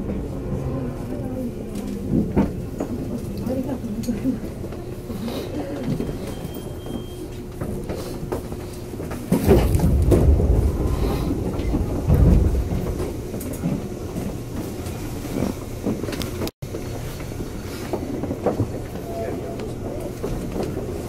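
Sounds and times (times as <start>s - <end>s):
train wheels rumbling on rails: 0.0s - 21.0s
wheels clacking over rail joints: 7.5s - 21.0s.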